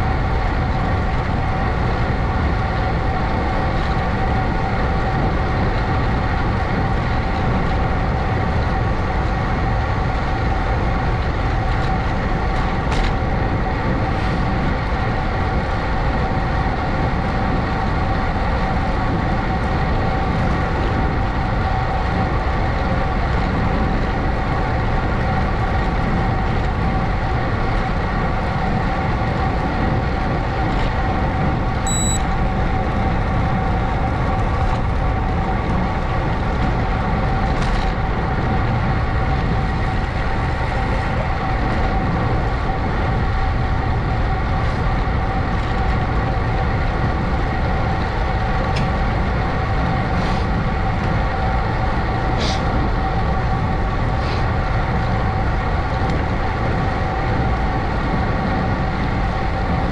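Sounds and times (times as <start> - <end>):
steady whine: 0.0 - 59.9
wind on microphone: 0.0 - 59.9.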